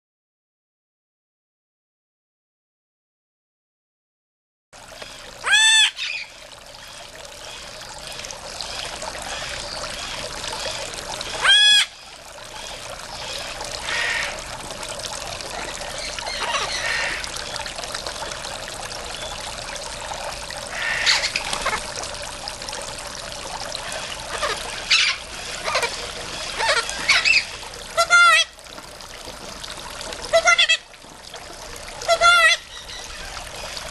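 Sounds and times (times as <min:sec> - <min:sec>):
running water trickling: 0:04.8 - 0:33.9
macaw calling: 0:05.0 - 0:06.3, 0:12.6 - 0:14.4, 0:16.0 - 0:17.2, 0:20.7 - 0:21.8, 0:24.2 - 0:28.5.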